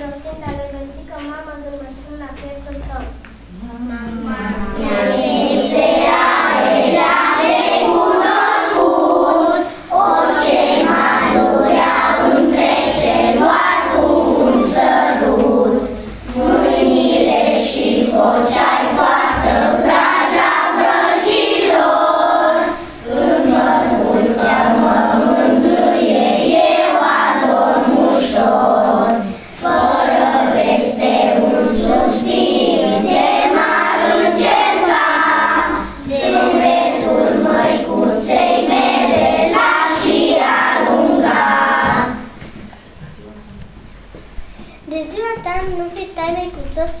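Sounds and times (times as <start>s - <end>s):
children singing in chorus: 3.6s - 42.9s.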